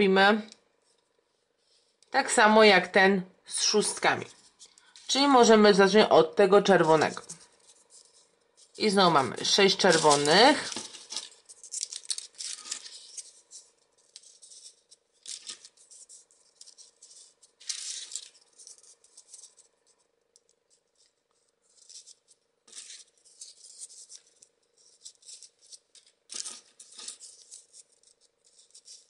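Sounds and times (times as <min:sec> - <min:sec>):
faint steady hum: 0:00.0 - 0:29.0
paper rustling and clicking: 0:06.8 - 0:29.0.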